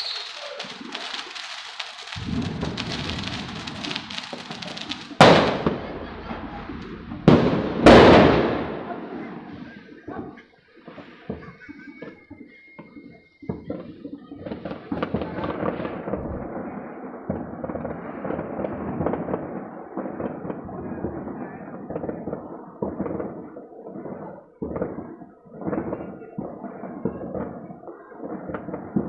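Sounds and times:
firework whistle: 0.0s - 8.8s, 10.9s - 14.2s
firecrackers crackling: 0.0s - 29.0s
firework bangs: 0.0s - 29.0s.

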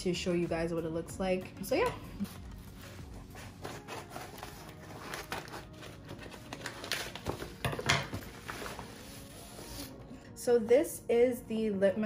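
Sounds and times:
paper crinkling: 2.2s - 10.0s.

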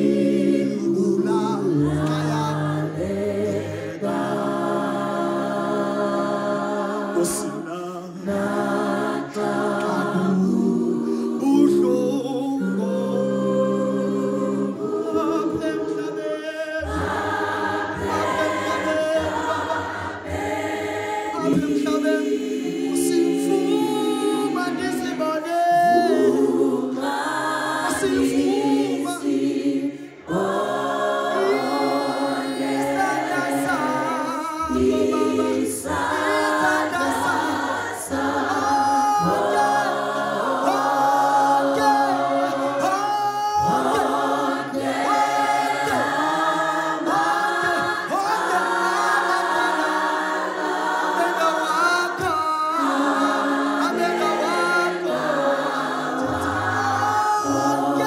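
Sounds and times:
vocal group singing in harmony: 0.0s - 58.0s.

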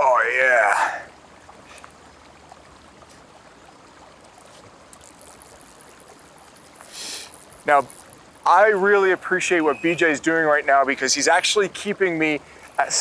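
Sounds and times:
river water rushing: 0.0s - 13.0s
wind: 0.0s - 13.0s
soft ticks: 4.2s - 8.9s.

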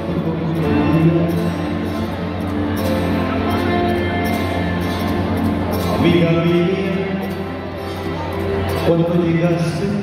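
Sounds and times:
man singing: 0.0s - 2.4s, 5.9s - 8.1s, 8.7s - 10.0s
band playing a slow ballad: 0.0s - 10.0s.

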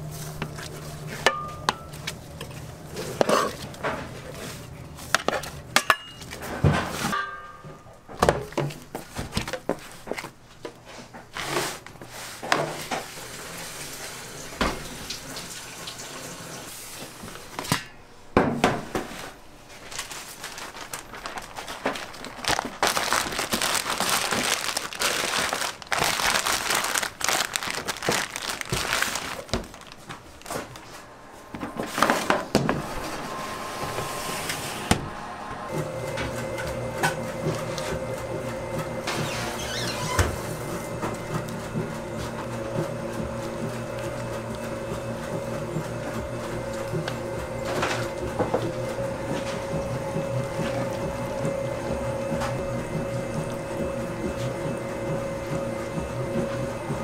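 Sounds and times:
plastic bag crinkling: 19.7s - 31.0s.

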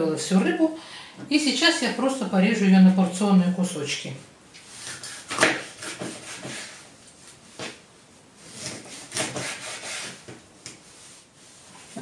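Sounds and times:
knife scraping cutting board: 4.7s - 6.9s, 8.4s - 10.8s
knife sawing through fish: 8.6s - 10.2s.

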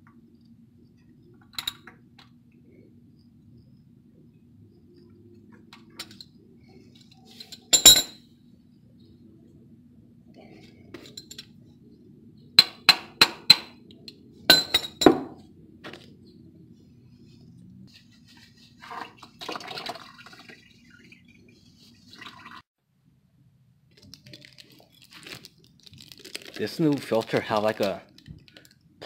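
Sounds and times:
rustling and handling noises: 5.4s - 8.0s, 15.7s - 19.4s, 23.9s - 29.0s
metal tools clinking: 7.0s - 8.2s, 14.5s - 15.3s.

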